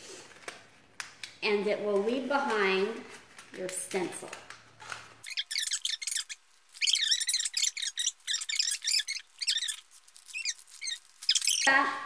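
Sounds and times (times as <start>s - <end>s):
sticky tape peeling off backing: 4.3s - 11.7s.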